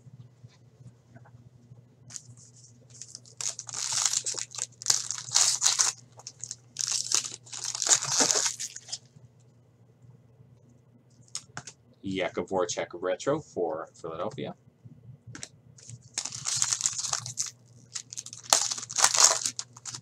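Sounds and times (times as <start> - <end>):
foil wrapper crinkling and tearing: 2.9 - 9.1, 15.8 - 20.0.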